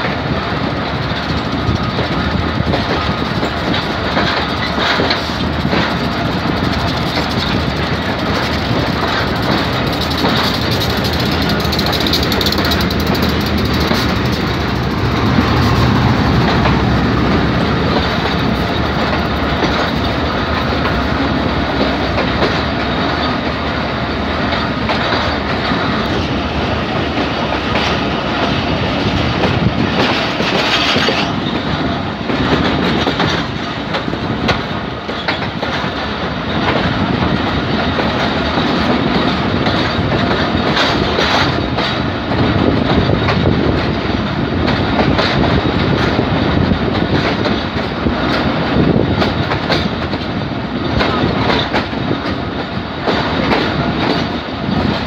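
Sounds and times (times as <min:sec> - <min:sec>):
train wheels rumbling and clattering: 0:00.0 - 0:55.0.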